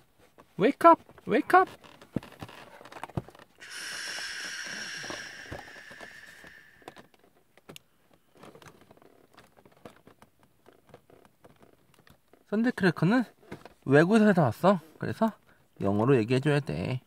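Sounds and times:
steady hiss: 3.6 - 7.0.

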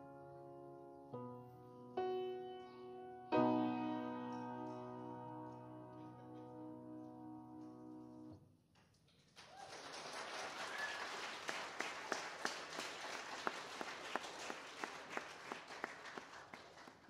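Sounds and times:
piano chord ringing: 0.0 - 8.4
audience applause: 9.3 - 17.0.

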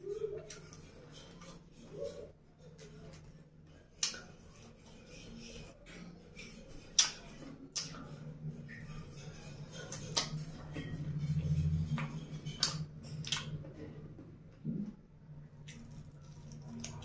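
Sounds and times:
steady low hum: 0.0 - 17.0
crunchy chewing of fried food: 15.6 - 17.0.

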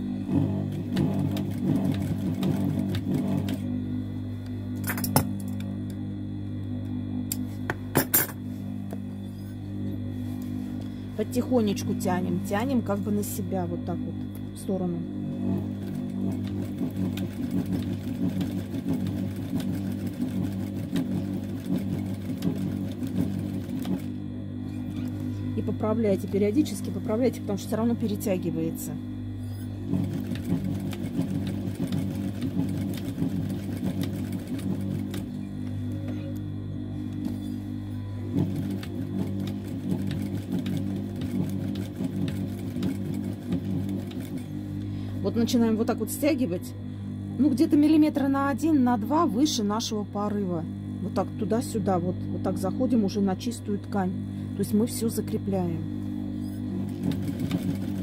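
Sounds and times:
sewing machine motor hum: 0.0 - 58.0.

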